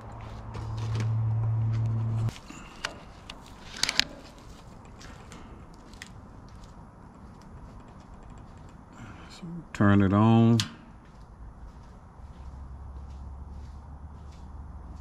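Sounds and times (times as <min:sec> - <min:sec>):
steady low hum: 0:00.0 - 0:15.0
handling clicks and knocks: 0:02.8 - 0:09.0.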